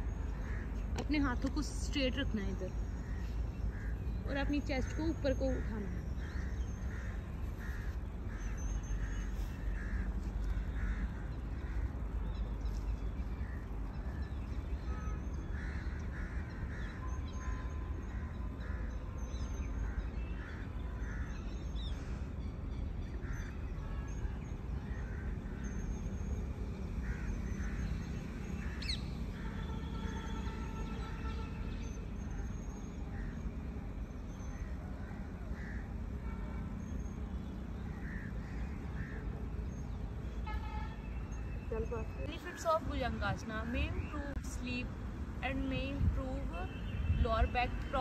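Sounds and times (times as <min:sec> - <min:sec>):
birds calling: 0:00.0 - 0:22.2, 0:27.0 - 0:31.5, 0:36.9 - 0:44.7.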